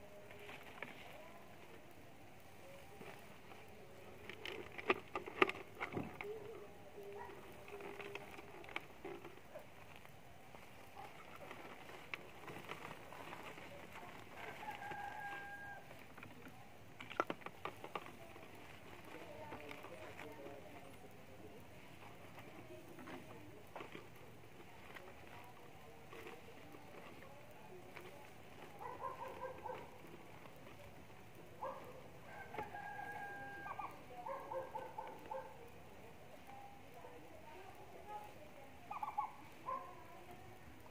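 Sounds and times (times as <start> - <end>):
plastic bottle being handled: 2.8 - 35.6
rooster crowing faintly: 13.2 - 16.2, 31.6 - 35.7
rooster crowing: 14.3 - 16.0, 32.2 - 34.0.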